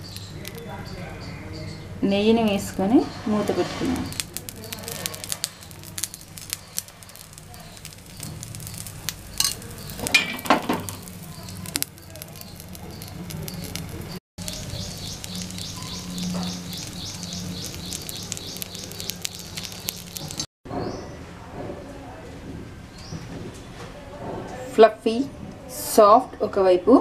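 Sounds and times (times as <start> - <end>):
batter sizzling in a pan: 0.0 - 1.0, 2.5 - 20.5.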